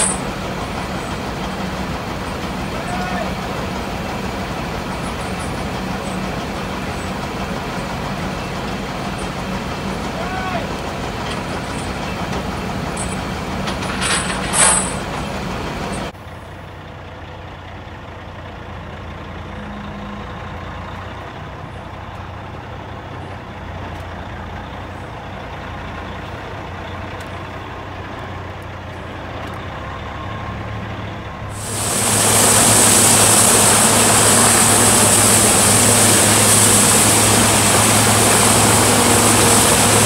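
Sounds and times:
machine noise: 0:00.0 - 0:16.1, 0:31.5 - 0:40.0
truck engine running: 0:00.0 - 0:40.0.

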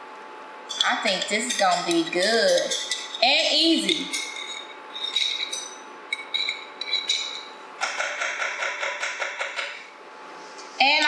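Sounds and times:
fork clinking against glass jar: 0:00.7 - 0:07.5.

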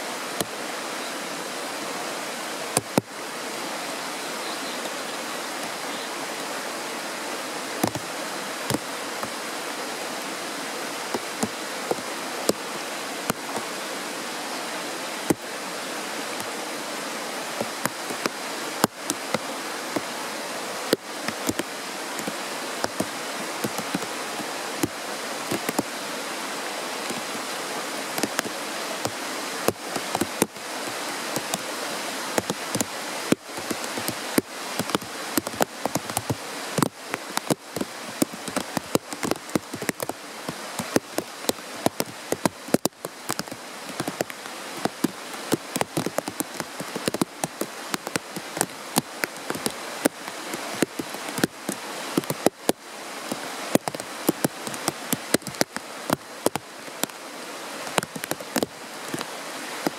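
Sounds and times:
water splashes and drips: 0:00.0 - 0:04.1, 0:04.7 - 0:59.9
stream rushing over stones: 0:00.0 - 0:59.9.

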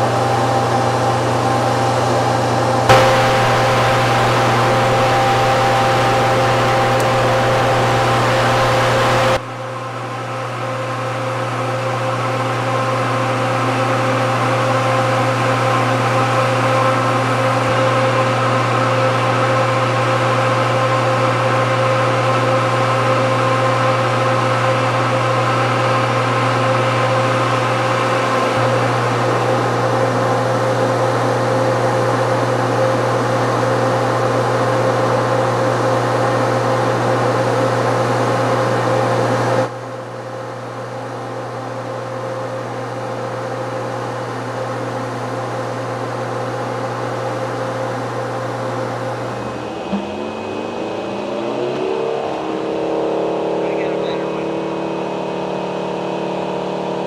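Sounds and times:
machinery hum with whining tones: 0:00.0 - 0:57.0.

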